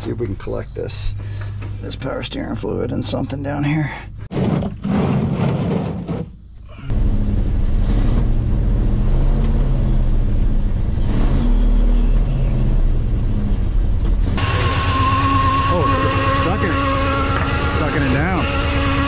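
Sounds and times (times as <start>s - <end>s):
engine idling: 12.0s - 19.0s.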